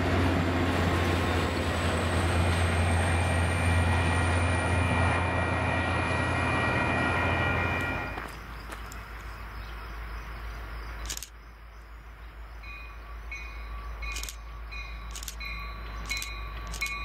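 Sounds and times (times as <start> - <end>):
diesel locomotive engine drone: 0.0 - 17.0.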